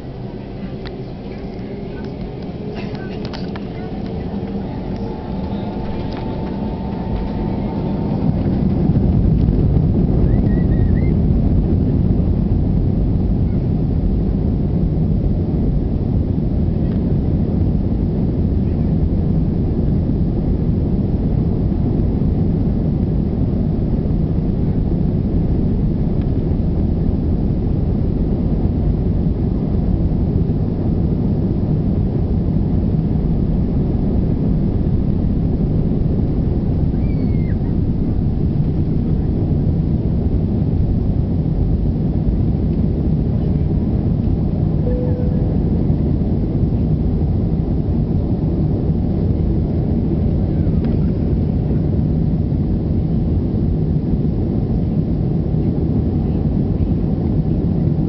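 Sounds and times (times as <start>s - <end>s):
jet engines at takeoff thrust: 0.0s - 58.0s
wheels rumbling on runway: 0.0s - 58.0s.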